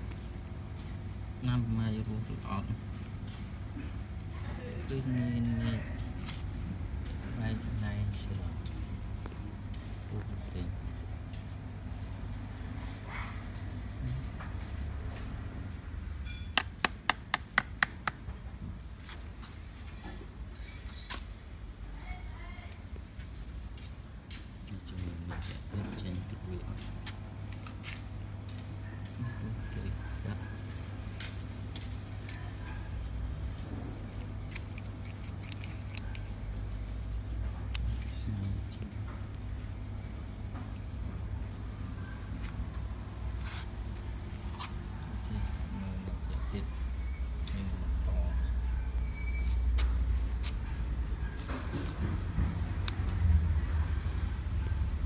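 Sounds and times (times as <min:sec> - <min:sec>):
scissors snipping: 0:34.2 - 0:36.4, 0:52.8 - 0:53.2.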